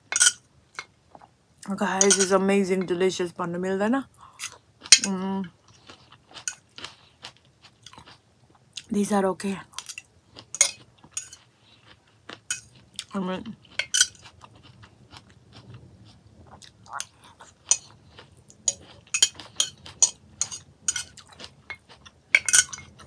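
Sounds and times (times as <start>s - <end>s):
metal spoon scraping glass dish: 18.7s - 21.1s, 22.4s - 23.0s.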